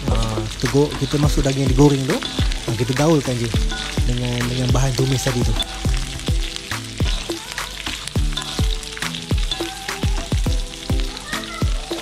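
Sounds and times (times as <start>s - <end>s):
background music with beat: 0.0s - 12.0s
food sizzling in a wok: 0.0s - 12.0s
spatula stirring food: 0.9s - 12.0s.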